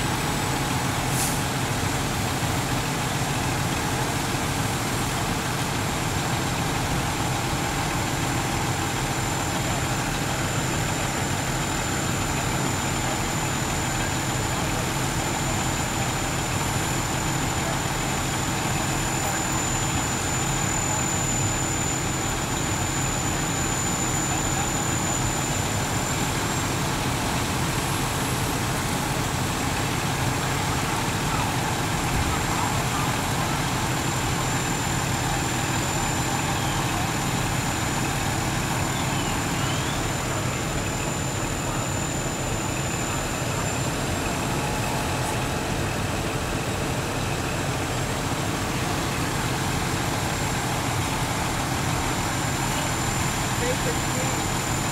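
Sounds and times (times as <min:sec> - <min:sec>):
diesel engines droning: 0:00.0 - 0:54.9.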